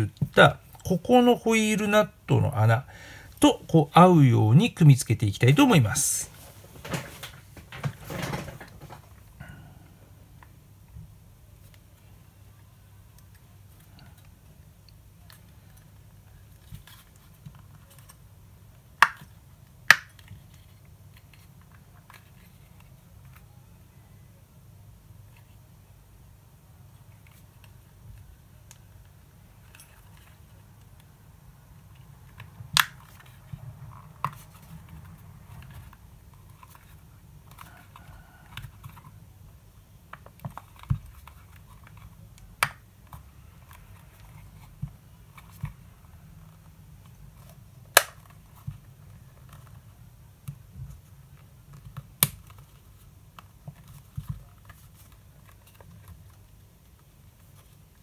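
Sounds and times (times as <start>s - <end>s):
rubbing and handling noise: 0.0s - 9.6s, 26.9s - 58.0s.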